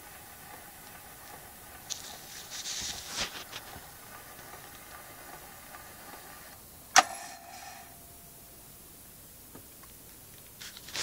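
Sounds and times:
gramophone needle surface hiss: 0.0 - 11.0
sharp click with ringing tone: 6.9 - 8.3.

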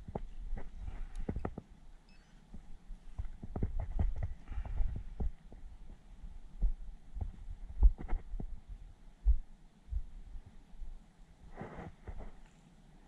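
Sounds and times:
dull low thumps: 3.1 - 10.5
short rustle: 11.5 - 12.8.

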